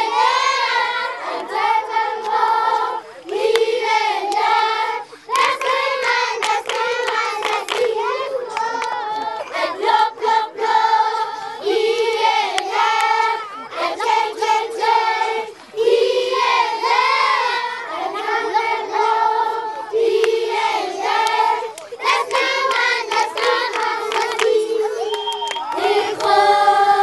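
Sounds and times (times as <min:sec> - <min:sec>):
women and children singing: 0:00.0 - 0:27.0
hand claps: 0:03.2 - 0:04.5, 0:05.3 - 0:09.3, 0:21.2 - 0:26.4.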